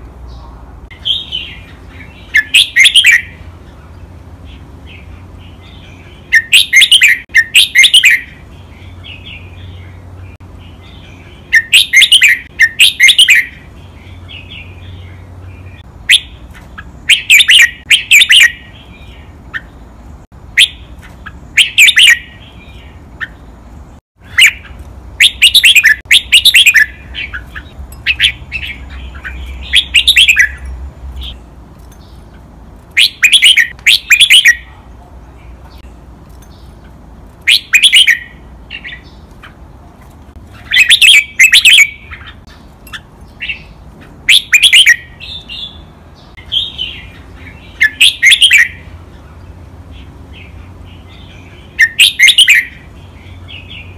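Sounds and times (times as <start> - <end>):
bulbul singing: 0.0 - 39.7, 40.3 - 53.9
soft bird twittering: 0.3 - 39.6, 40.5 - 53.9.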